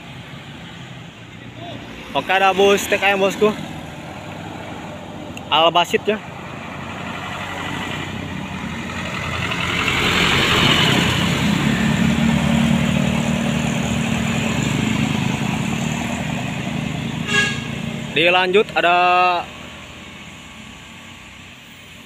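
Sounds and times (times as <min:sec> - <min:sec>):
bus diesel engine: 0:00.0 - 0:22.0
tyres driving past: 0:00.0 - 0:22.0
short horn toot: 0:17.2 - 0:17.8.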